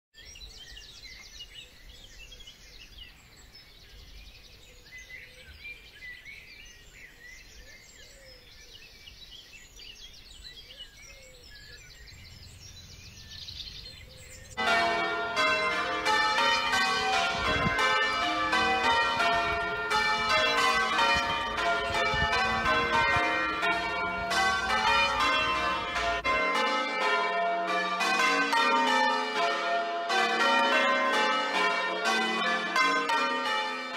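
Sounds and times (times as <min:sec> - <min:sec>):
birds chirping: 0:00.2 - 0:26.2
church bells ringing: 0:14.6 - 0:33.9.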